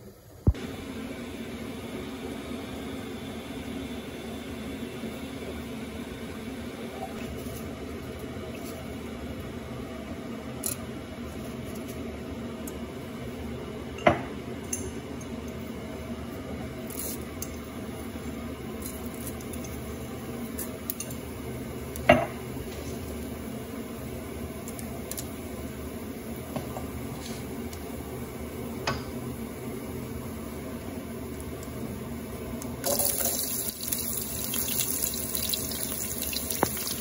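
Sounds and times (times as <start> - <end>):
steady background hum: 0.0 - 37.0.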